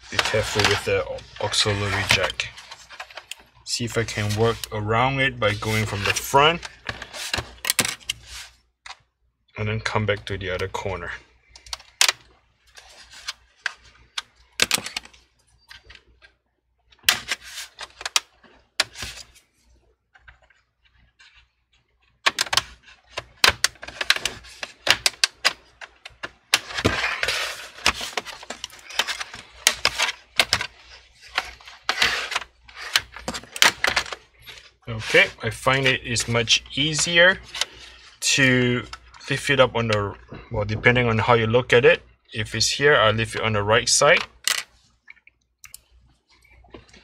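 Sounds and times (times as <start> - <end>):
plastic scraping: 0.0 - 8.6, 20.1 - 41.4.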